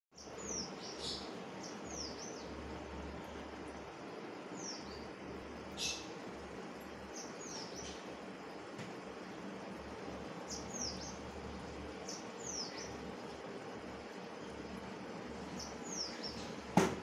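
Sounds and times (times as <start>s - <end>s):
small bird chirping: 0.2s - 2.6s, 4.5s - 6.2s, 7.0s - 8.2s, 10.4s - 13.2s, 15.3s - 16.7s
aquarium aeration hum and hiss: 0.2s - 17.0s.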